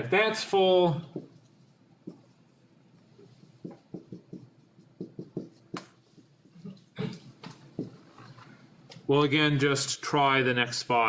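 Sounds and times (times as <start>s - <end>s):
marker writing on whiteboard: 0.9s - 8.6s.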